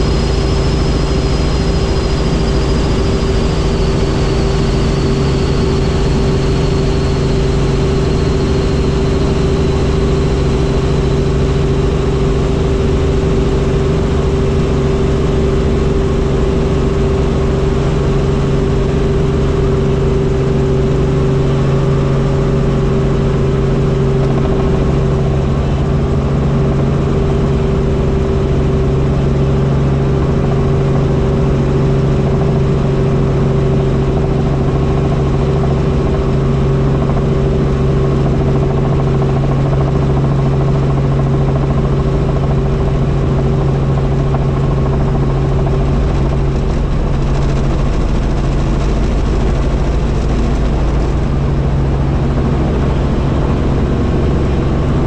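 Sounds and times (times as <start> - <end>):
helicopter rotor drone: 0.0 - 55.0.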